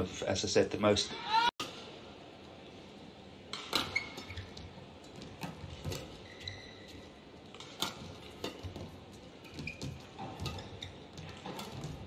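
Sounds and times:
shoe squeaks: 0:05.9 - 0:07.2, 0:09.5 - 0:11.4.

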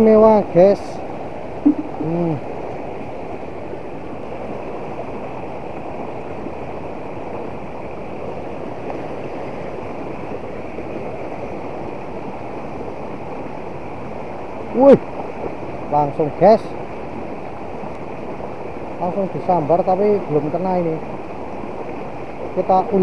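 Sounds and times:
short voice sound: 0:01.7 - 0:02.4.

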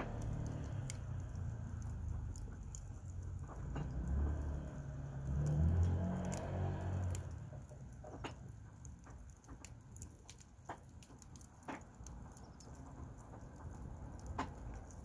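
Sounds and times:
low rumble: 0:00.0 - 0:05.2
firewood crackling and popping: 0:00.0 - 0:15.0.

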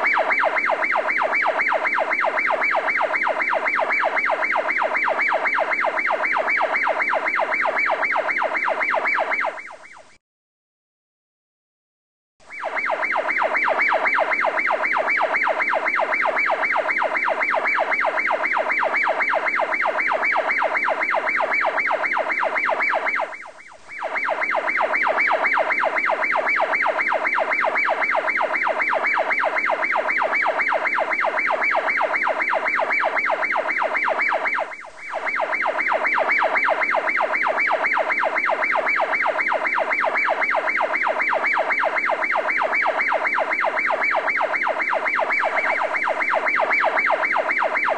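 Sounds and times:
pulsing electronic siren tone: 0:00.0 - 0:10.2, 0:12.5 - 0:47.9.

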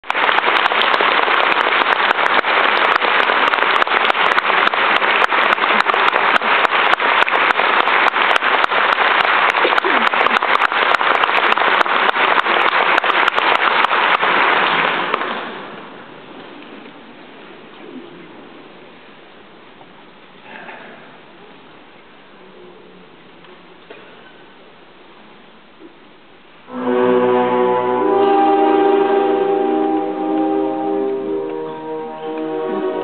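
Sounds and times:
audience applauding: 0:00.0 - 0:16.0, 0:26.8 - 0:33.0.

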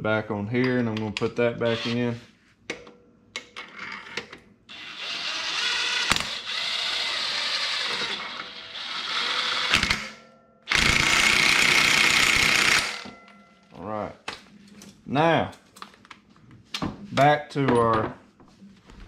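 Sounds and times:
impact wrench bursts: 0:04.7 - 0:13.1.

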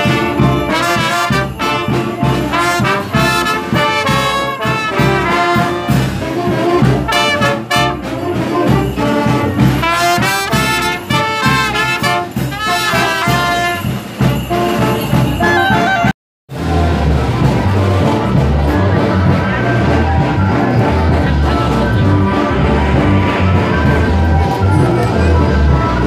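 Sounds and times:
marching band playing: 0:00.0 - 0:26.0.

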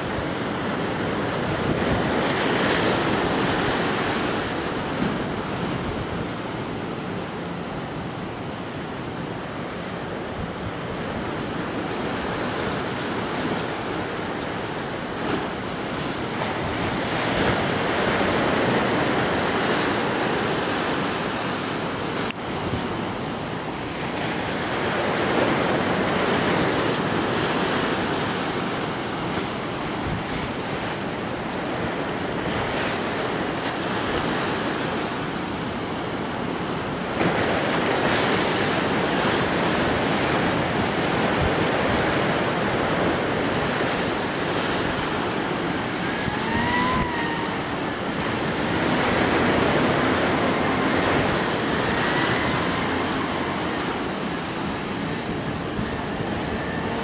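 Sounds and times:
wind buffeting microphone: 0:00.0 - 0:57.0
surf breaking on rocks: 0:37.0 - 0:57.0.

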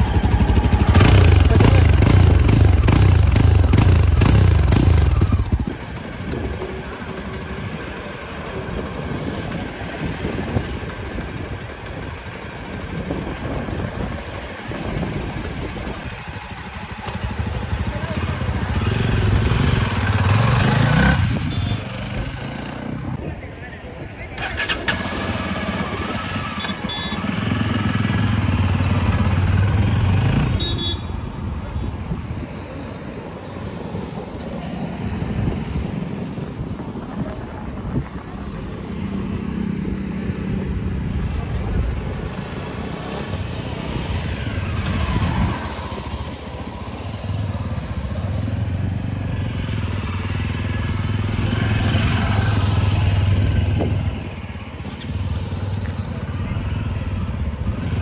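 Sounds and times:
motorcycle engine passing: 0:00.0 - 0:05.8.

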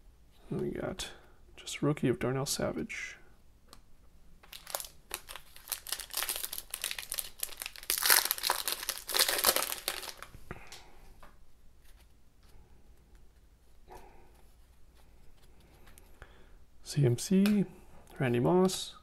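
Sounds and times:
wrapper tearing and crinkling: 0:04.4 - 0:10.3.

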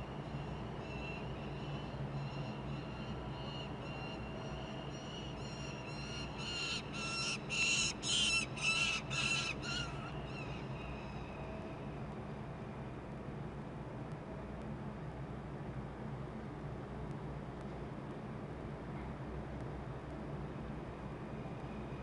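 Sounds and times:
falcon calling: 0:05.4 - 0:10.6.

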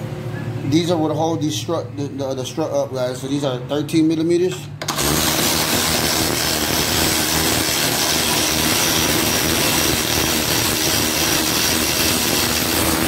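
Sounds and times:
electric ratchet running: 0:04.8 - 0:13.0.

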